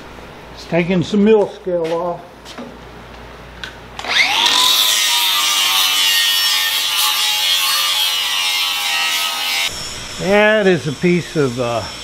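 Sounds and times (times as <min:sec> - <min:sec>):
angle grinder grinding steel: 0:04.0 - 0:12.0.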